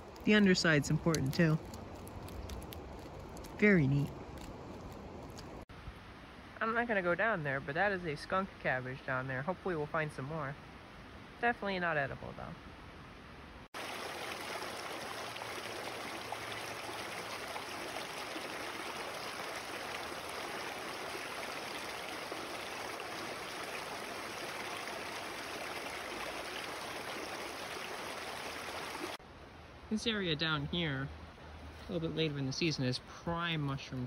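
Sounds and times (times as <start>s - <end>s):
creek water rushing over rocks: 13.8s - 29.2s.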